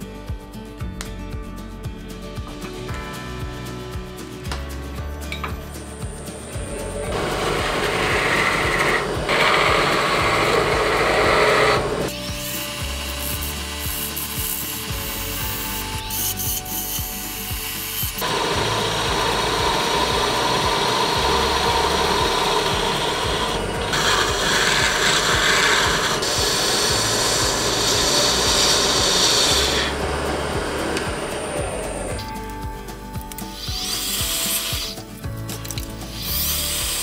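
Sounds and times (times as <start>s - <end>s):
lathe tool scraping wood: 6.3s - 32.3s.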